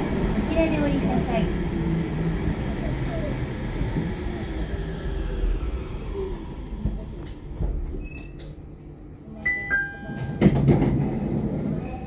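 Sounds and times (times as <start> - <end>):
train running: 0.0 - 12.0
electronic chime: 9.4 - 10.4.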